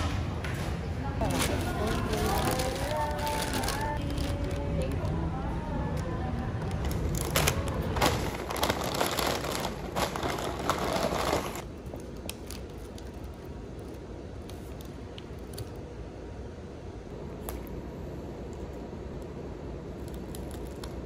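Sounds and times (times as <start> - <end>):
paper bag and wrappers rustling: 1.2 - 5.2, 6.6 - 14.0.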